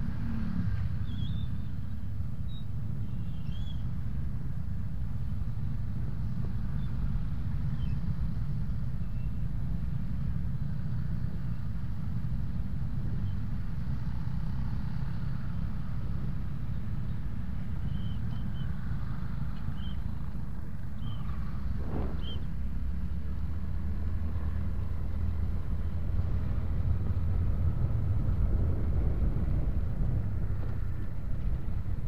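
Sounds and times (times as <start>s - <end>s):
wind noise: 21.3s - 22.9s, 25.3s - 32.0s.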